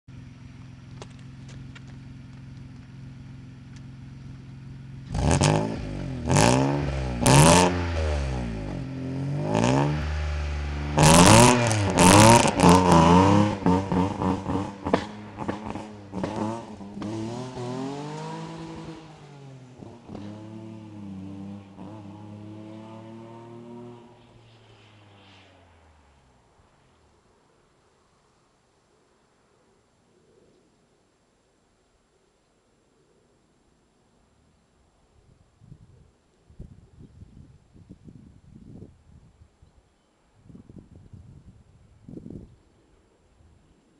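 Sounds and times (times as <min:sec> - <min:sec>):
car engine idling and revving: 0:00.1 - 0:27.5
car accelerating away: 0:00.2 - 0:27.1.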